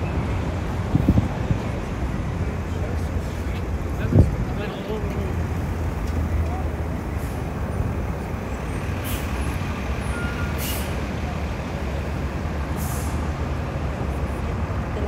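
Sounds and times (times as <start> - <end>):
heavy vehicle traffic rumble: 0.0 - 15.0
air brake hisses: 10.2 - 11.0, 12.8 - 13.2.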